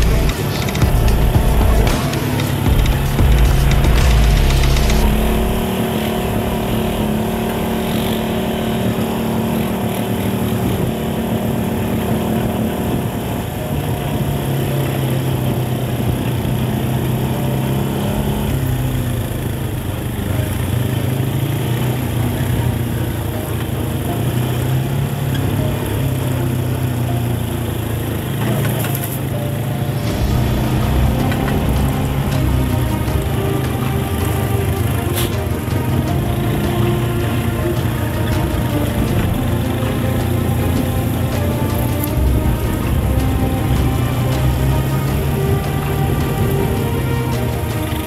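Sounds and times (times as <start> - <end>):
buggy engine running: 0.0 - 48.0.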